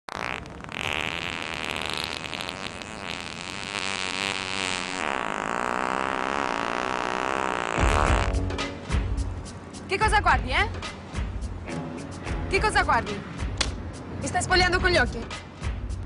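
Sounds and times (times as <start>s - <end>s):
fart sound effect: 0.1s - 8.5s.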